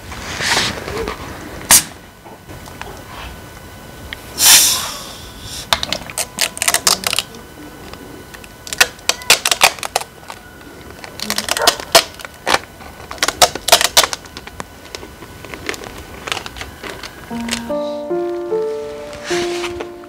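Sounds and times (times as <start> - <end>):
carbonation hiss: 4.2 - 5.7
plastic label crackling: 5.8 - 7.4, 8.3 - 17.7.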